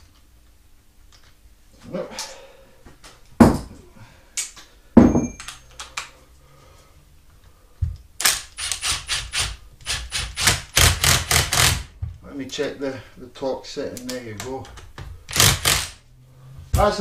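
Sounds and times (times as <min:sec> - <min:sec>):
loud knocks: 0:03.4 - 0:03.7
impact driver hammering: 0:08.2 - 0:11.9.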